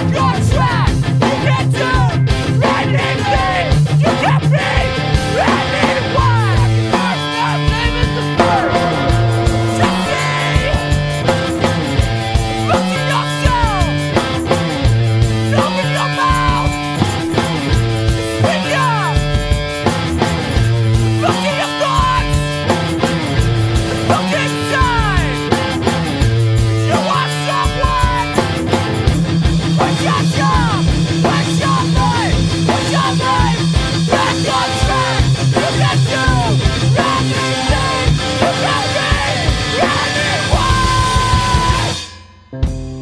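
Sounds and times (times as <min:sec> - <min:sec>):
distorted electric guitar: 0:00.0 - 0:43.0
pounding drum kit: 0:00.0 - 0:43.0
guitar chord ringing: 0:08.0 - 0:14.8.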